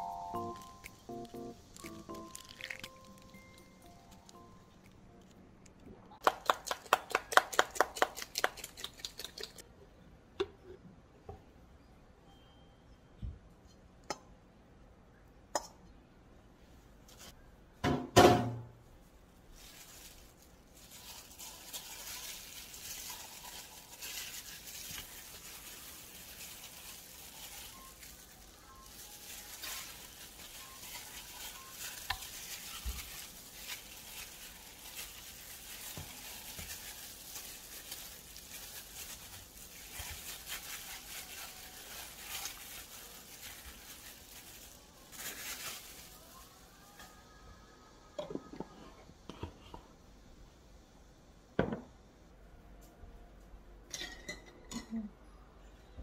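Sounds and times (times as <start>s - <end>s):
wet squelching of rubbed meat: 1.7s - 3.6s, 19.5s - 46.2s.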